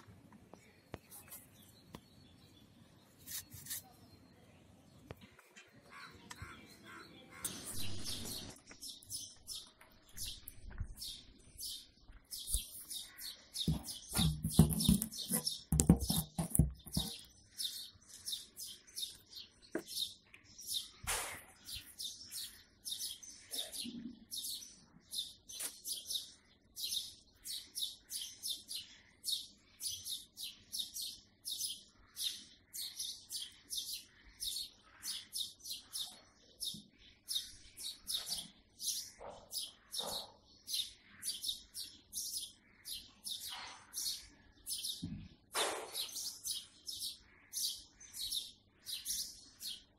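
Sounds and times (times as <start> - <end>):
small birds chirping: 0.0 - 49.9
spoon knocking metal pot: 13.7 - 17.2.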